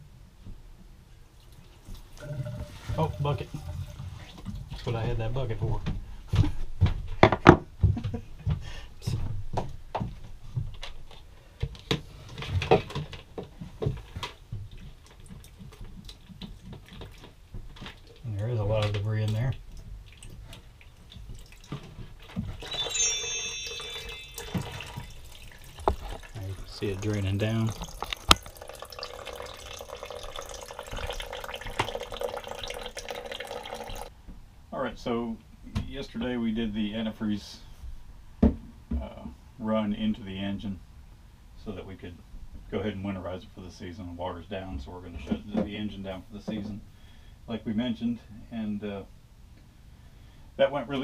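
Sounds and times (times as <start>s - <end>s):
water trickling into plastic bucket: 1.4s - 5.0s, 14.6s - 22.7s, 23.9s - 34.1s.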